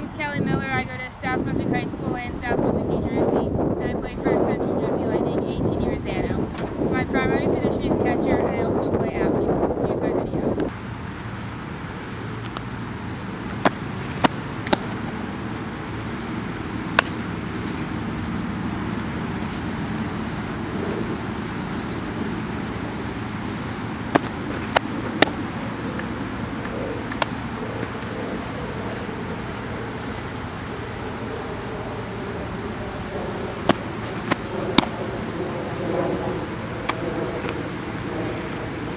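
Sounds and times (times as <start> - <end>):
road traffic hum: 0.0 - 38.9
softball smacking into mitt: 13.6 - 15.0, 17.0 - 17.2, 24.1 - 25.4, 33.7 - 35.0.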